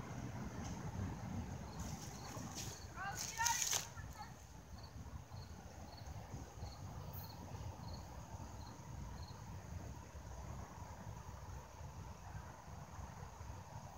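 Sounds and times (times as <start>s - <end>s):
insect chirping: 1.1s - 9.9s.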